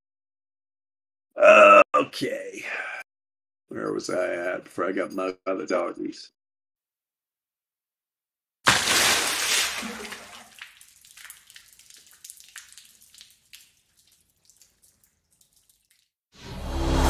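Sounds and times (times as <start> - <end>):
loud wet paint splash: 8.6 - 16.1
paint drips and spatters: 8.7 - 16.2.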